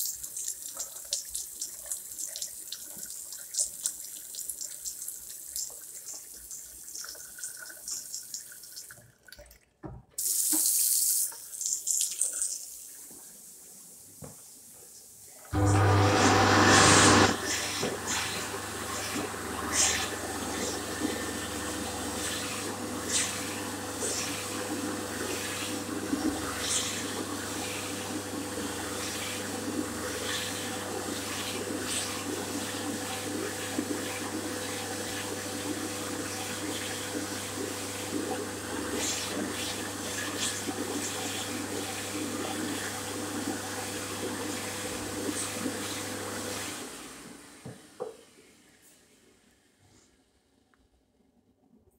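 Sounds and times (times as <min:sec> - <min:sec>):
hand dryer blowing air: 0:15.5 - 0:47.4.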